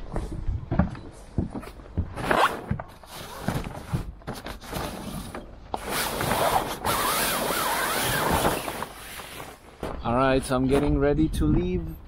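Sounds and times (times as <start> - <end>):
cloth sliding: 5.9 - 9.7
fabric rustling: 6.0 - 9.8.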